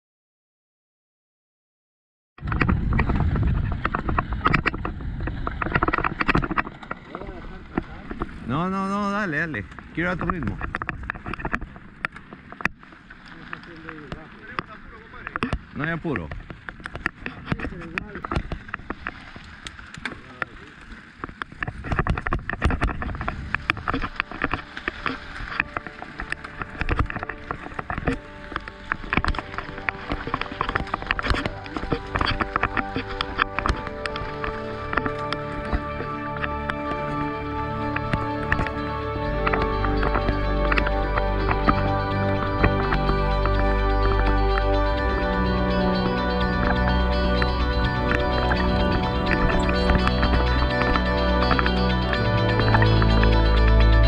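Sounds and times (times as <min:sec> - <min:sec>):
wind rumble on microphone: 0:02.4 - 0:12.8, 0:13.8 - 0:54.0
bike rattling clicks and knocks: 0:02.5 - 0:07.2.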